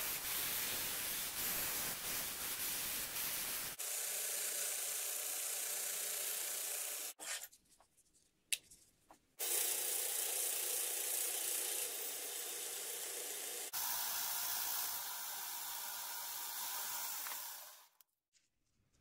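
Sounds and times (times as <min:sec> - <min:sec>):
belt grinder grinding steel: 0:09.4 - 0:17.9.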